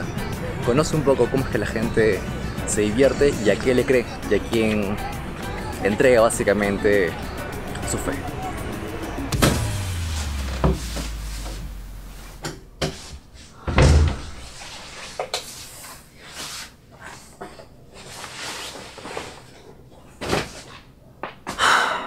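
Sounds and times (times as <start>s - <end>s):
low hum: 8.9s - 13.6s
door shutting with thump: 9.3s - 11.6s, 13.6s - 14.4s.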